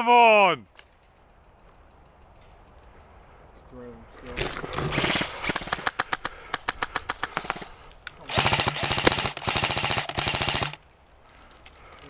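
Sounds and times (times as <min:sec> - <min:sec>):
airsoft rifle firing full auto: 0:08.3 - 0:10.8.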